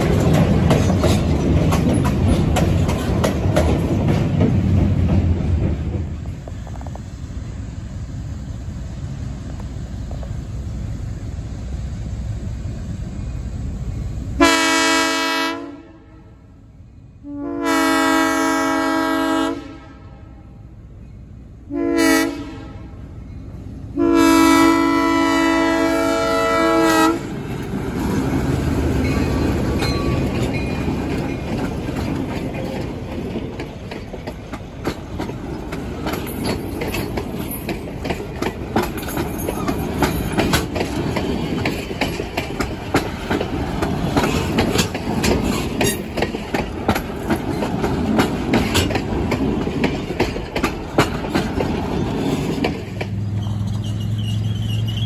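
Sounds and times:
train wheels clicking on rails: 0:00.0 - 0:14.5, 0:23.0 - 0:55.0
diesel locomotive engines running: 0:00.0 - 0:55.0
train horn blasts: 0:14.4 - 0:16.5, 0:17.2 - 0:20.6, 0:21.7 - 0:23.1, 0:23.9 - 0:27.3.

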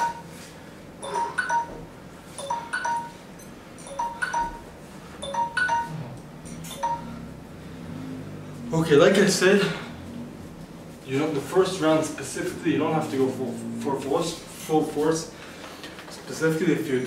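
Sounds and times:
faint low hum: 0:03.8 - 0:15.6.

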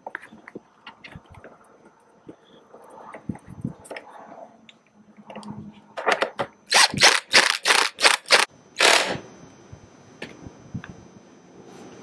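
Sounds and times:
hand ratchet clicking: 0:06.7 - 0:09.0.

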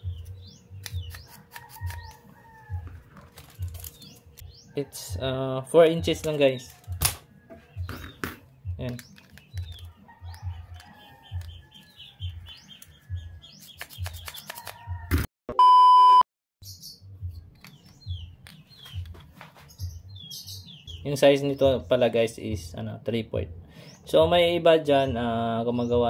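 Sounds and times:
bird chirping: 0:00.0 - 0:02.8, 0:03.6 - 0:05.2, 0:07.6 - 0:15.0, 0:16.6 - 0:22.1
steady electronic beep: 0:15.5 - 0:16.2.

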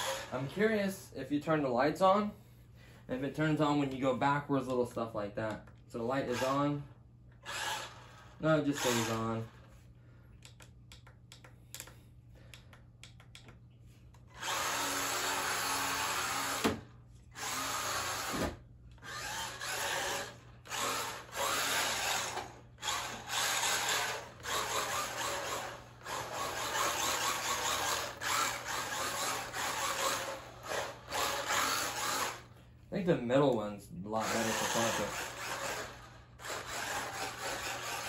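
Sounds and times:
electric motor and gears whining: 0:00.0 - 0:00.6, 0:06.0 - 0:09.8, 0:14.2 - 0:32.6, 0:34.1 - 0:38.0.

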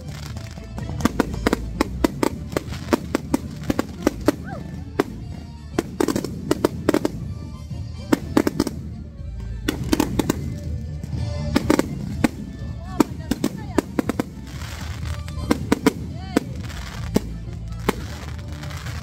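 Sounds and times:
fireworks bangs and cracks: 0:00.0 - 0:19.0.

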